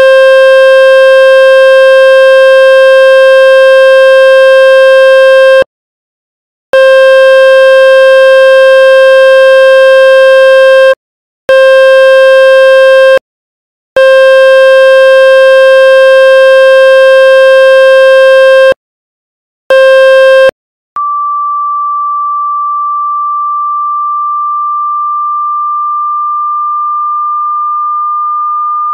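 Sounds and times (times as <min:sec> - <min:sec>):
buzzy electronic test tone: 0:19.7 - 0:28.9.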